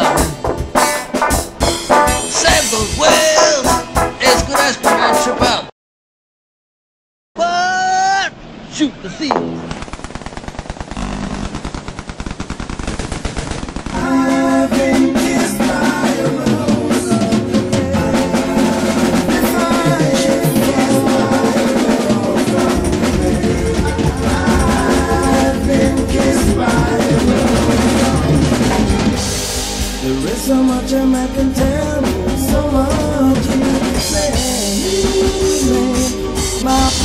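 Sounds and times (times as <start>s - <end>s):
rock band playing: 0.0s - 5.7s, 14.0s - 37.0s
machine-gun fire: 9.4s - 15.0s.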